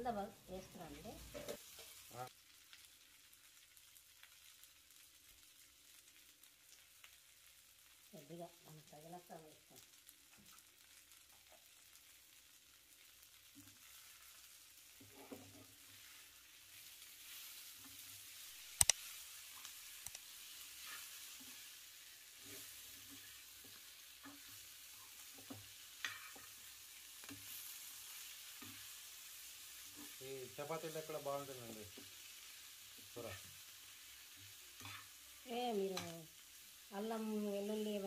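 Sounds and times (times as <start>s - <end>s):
faint sizzle in a pan: 0.0s - 38.0s
spatula scraping ticks: 18.6s - 21.1s, 35.9s - 36.3s.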